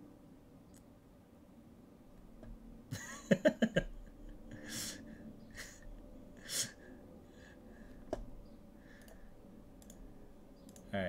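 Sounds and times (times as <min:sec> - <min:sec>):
man laughing: 0:02.9 - 0:05.8.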